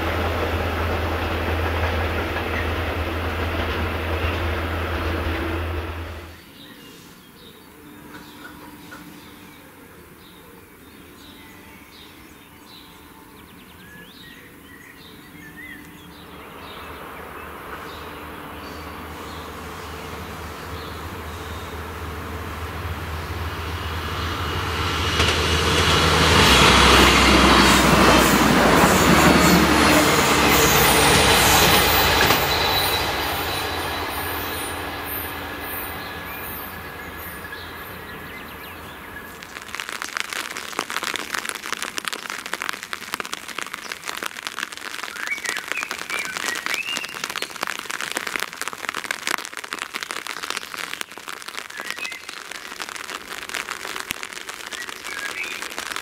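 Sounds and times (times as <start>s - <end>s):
train wheel noise: 0.0s - 6.4s, 16.2s - 39.5s
diesel train engine rumble: 0.0s - 6.5s, 15.8s - 39.6s
rain falling: 16.3s - 56.0s.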